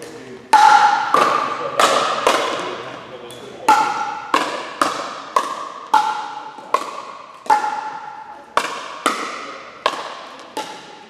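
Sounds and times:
paddles striking plastic ball: 3.7s - 8.0s, 8.6s - 11.0s.

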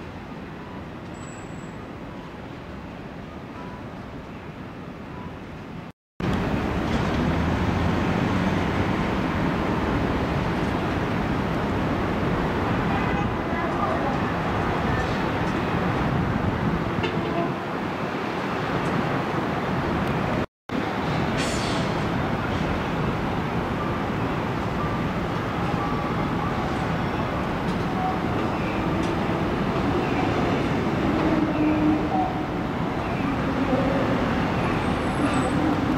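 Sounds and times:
city traffic noise: 0.0s - 35.9s
passing vehicles rumbling: 6.2s - 17.1s.

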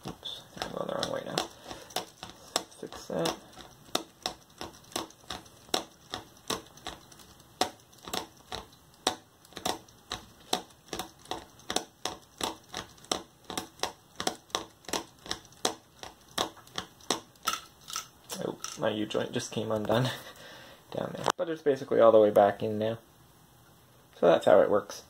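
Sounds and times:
plastic gear train clicking: 0.0s - 18.8s.

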